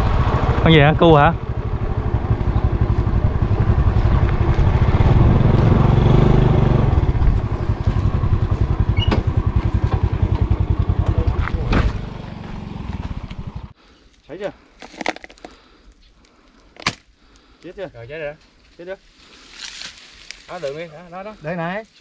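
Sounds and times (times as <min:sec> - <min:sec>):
motorcycle engine running: 0:00.0 - 0:13.8.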